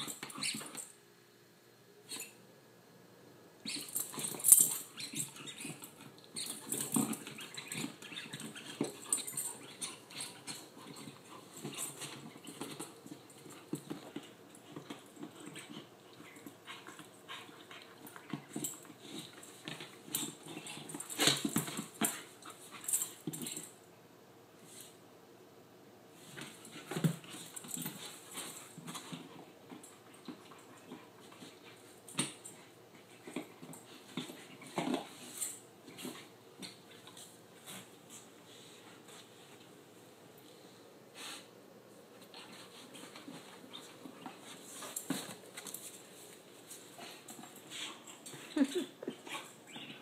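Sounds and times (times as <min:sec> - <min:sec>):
dog chewing and gnawing: 0:03.7 - 0:23.6.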